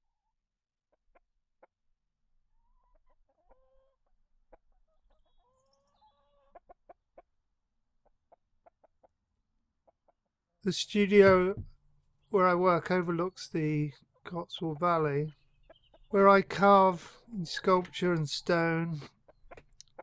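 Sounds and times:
chickens clucking: 2.5 - 7.4, 12.4 - 20.0.

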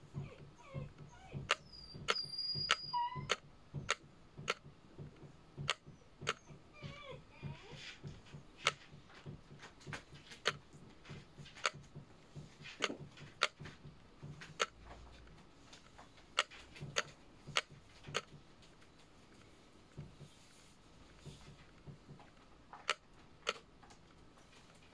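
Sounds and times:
sharp clicks and taps: 0.2 - 20.5, 21.1 - 24.9.

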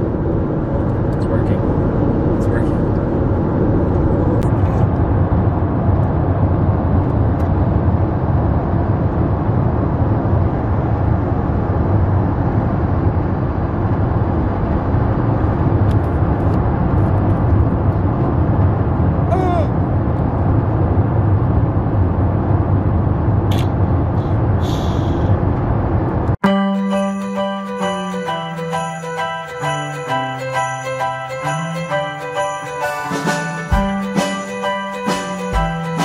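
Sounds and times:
car cabin road and engine noise: 0.0 - 26.4.

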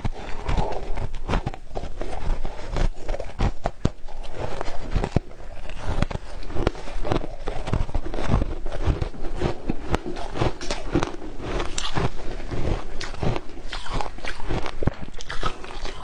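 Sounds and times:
chewing crushed ice: 0.0 - 16.0.

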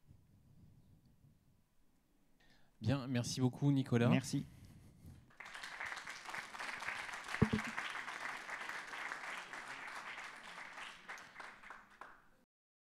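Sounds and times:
audience applauding: 5.3 - 12.3.

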